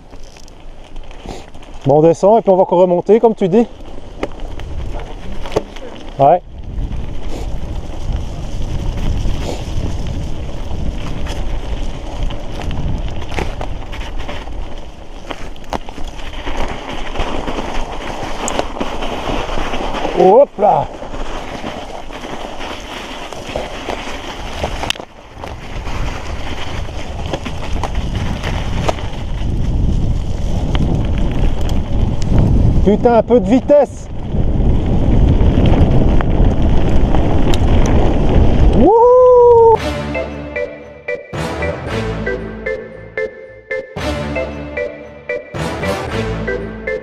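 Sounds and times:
mountain bike rolling rumble: 0.0s - 39.8s
wind buffeting microphone: 3.5s - 22.4s, 23.5s - 39.8s.

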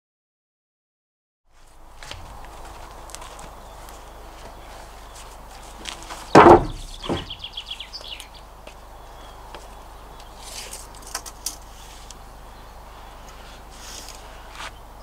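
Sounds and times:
songbird trilling: 6.2s - 11.0s
wooden board knocking on metal: 6.3s - 7.4s.

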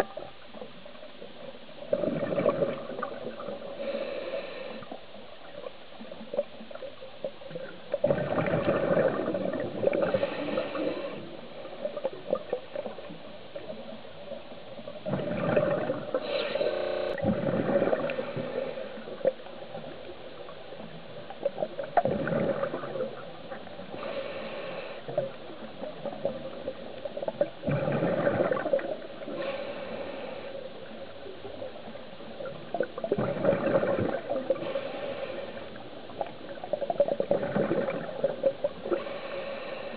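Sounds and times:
exhaled bubbles gurgling underwater: 0.0s - 39.9s.

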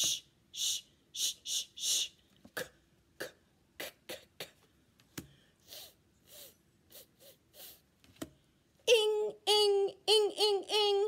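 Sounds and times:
woman voicing phonics sounds: 0.0s - 4.6s, 8.8s - 11.0s.

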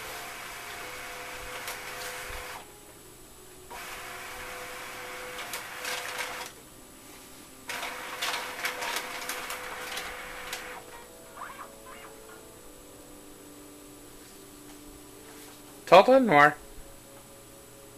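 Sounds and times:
printer mechanical whirring: 0.0s - 6.7s, 7.5s - 12.5s.

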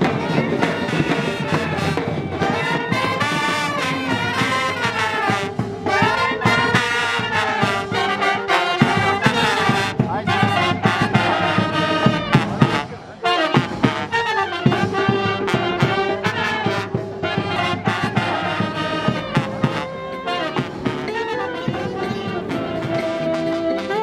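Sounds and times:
sousaphones: 0.0s - 24.0s
steady drum beat: 0.0s - 24.0s
trumpets: 0.0s - 24.0s.

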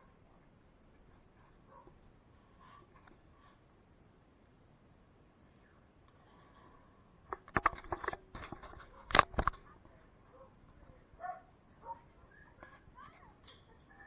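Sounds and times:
clatter of sharp clicks and knocks: 7.3s - 9.6s.

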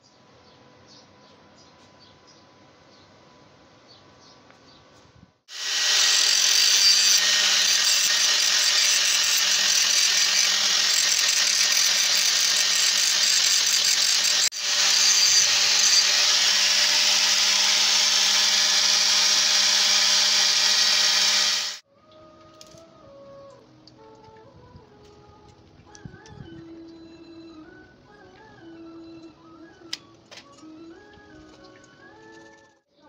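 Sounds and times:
angle grinder on steel: 5.5s - 21.8s.

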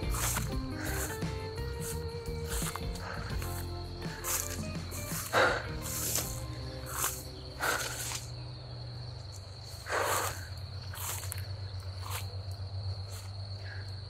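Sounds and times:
footsteps through tall grass: 0.0s - 8.4s, 9.2s - 12.4s
crickets chirring: 0.0s - 14.0s.

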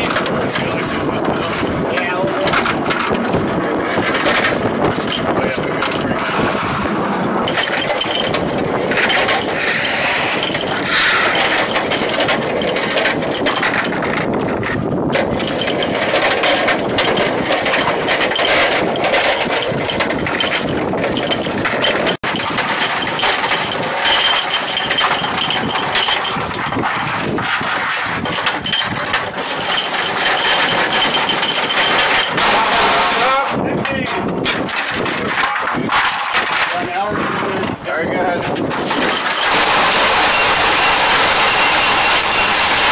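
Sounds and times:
steady aircraft engine noise: 0.0s - 22.6s, 38.8s - 42.9s.

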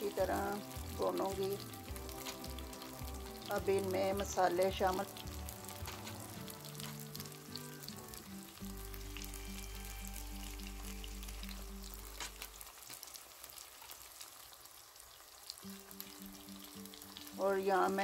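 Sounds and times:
soft background music with beat: 0.0s - 12.6s
vegetables sizzling in oil: 0.0s - 18.0s.

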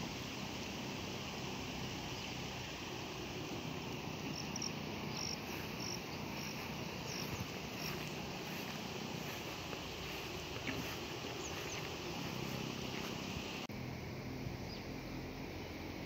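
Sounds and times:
floodwater rushing: 0.0s - 13.7s
cricket chirping: 0.2s - 13.7s.

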